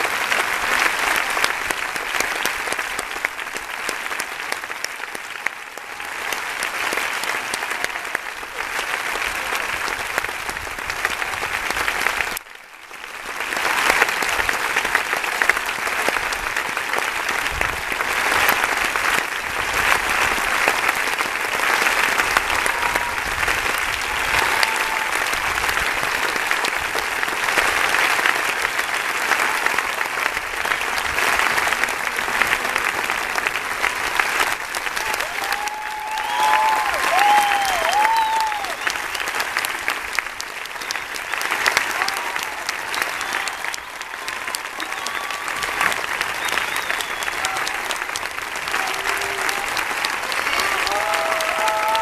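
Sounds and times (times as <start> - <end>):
audience applauding: 0.0 - 52.0.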